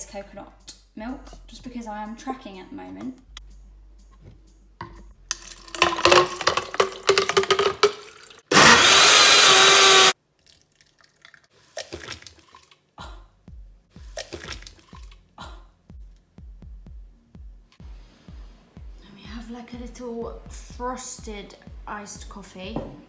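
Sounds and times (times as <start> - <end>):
ice cubes clattering: 5.3 - 8.4
blender running: 5.8 - 10.2.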